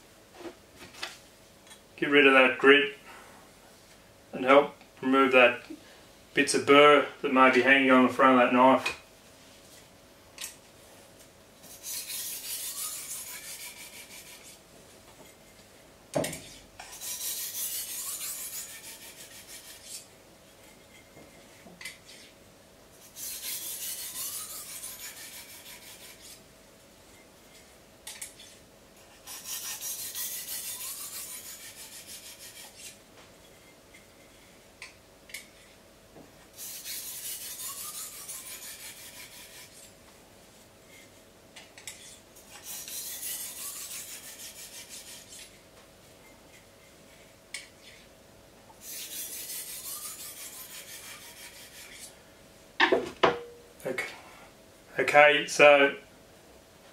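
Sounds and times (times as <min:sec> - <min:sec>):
faint steady hum: 0:00.0 - 0:56.9
sharpening stone rasping on knife: 0:11.7 - 0:14.6, 0:16.4 - 0:20.1, 0:23.0 - 0:26.4, 0:28.1 - 0:33.0, 0:36.6 - 0:39.9, 0:41.8 - 0:45.6, 0:48.8 - 0:52.1.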